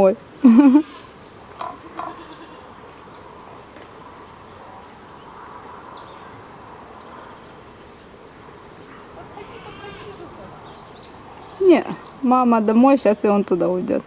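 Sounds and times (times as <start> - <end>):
insect buzzing: 5.4 - 12.3.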